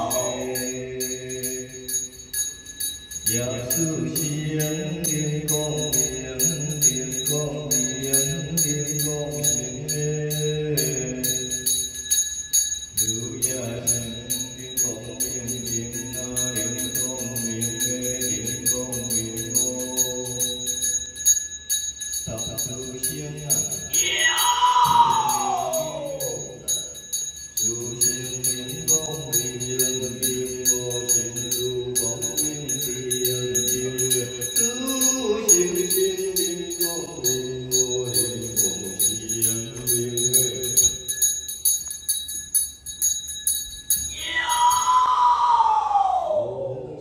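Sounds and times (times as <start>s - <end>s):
ritual chanting: 0.0s - 41.9s, 43.9s - 47.0s
hand bell shaken: 0.0s - 45.1s
loud falling call: 23.9s - 26.5s, 44.1s - 46.6s.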